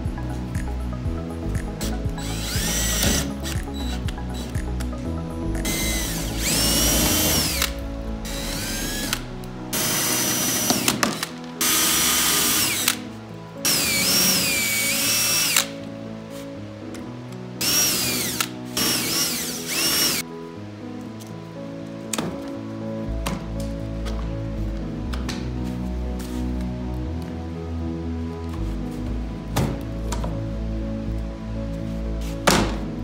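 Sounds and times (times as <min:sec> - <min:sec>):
background music: 0:00.0 - 0:33.0
cordless drill whining: 0:02.2 - 0:04.5, 0:05.7 - 0:09.2, 0:09.8 - 0:13.0, 0:13.7 - 0:15.7, 0:17.6 - 0:20.2.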